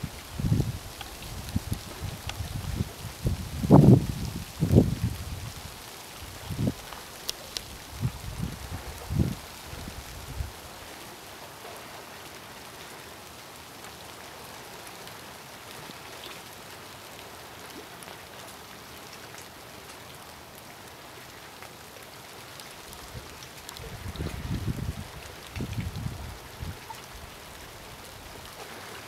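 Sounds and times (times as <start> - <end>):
light rain hiss: 0.0 - 29.0
rain drop ticks: 0.2 - 10.4, 22.5 - 28.6.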